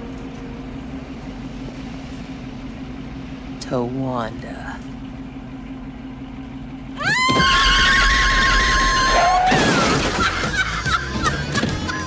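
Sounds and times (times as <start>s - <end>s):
car crash metal crunch: 9.2s - 10.5s.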